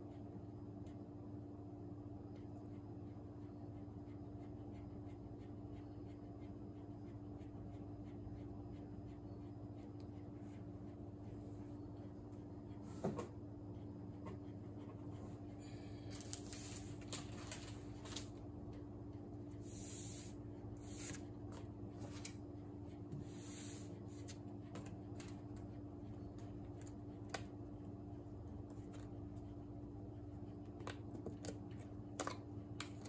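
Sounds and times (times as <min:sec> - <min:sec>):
steady low hum: 0:00.0 - 0:33.0
paper rustling: 0:16.0 - 0:18.4.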